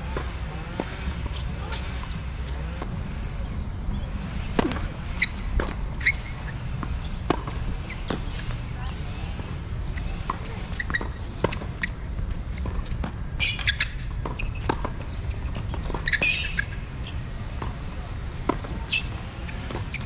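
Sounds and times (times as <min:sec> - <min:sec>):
tennis ball bouncing: 0:00.0 - 0:02.9, 0:04.3 - 0:20.0
shoe squeaks on court: 0:00.6 - 0:02.8, 0:04.6 - 0:07.2, 0:07.8 - 0:08.5, 0:09.8 - 0:17.3, 0:18.8 - 0:20.0.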